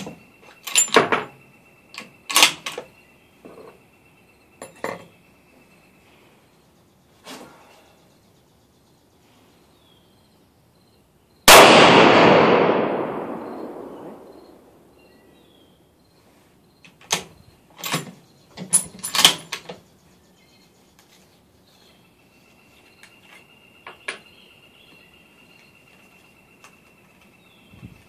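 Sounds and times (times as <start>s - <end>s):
rifle shot echoing: 11.5s - 15.0s.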